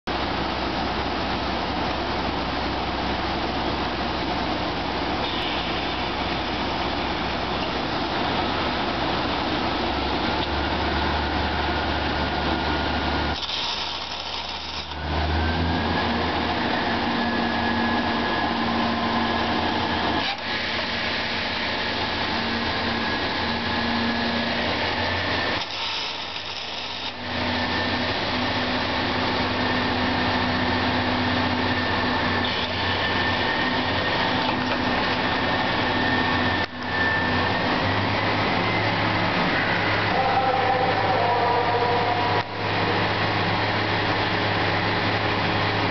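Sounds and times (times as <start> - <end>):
thin steady whine: 0.1 - 45.9
hiss: 25.6 - 27.2.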